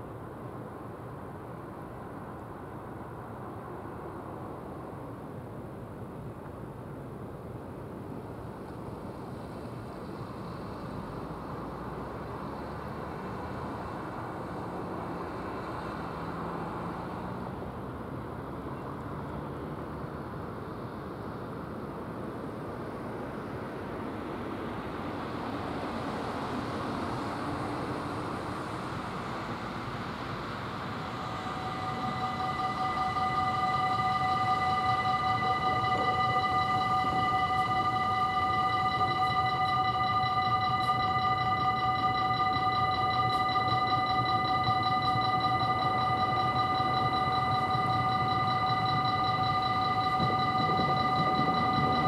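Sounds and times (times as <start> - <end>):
level crossing warning bell: 29.4 - 52.0.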